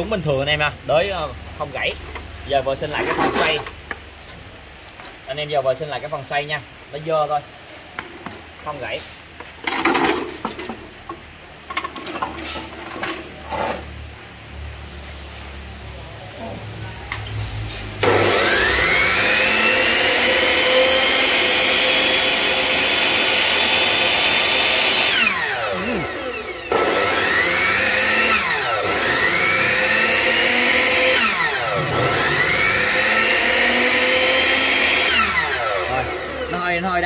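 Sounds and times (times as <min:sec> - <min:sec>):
saw motor whining up and down: 0:18.0 - 0:36.8.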